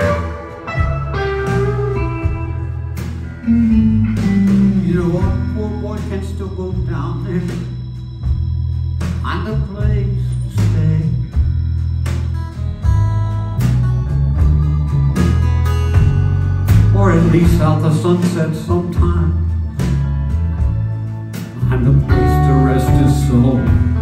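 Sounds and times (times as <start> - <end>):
electric guitar solo: 0.0 - 4.8
steady bass: 0.0 - 24.0.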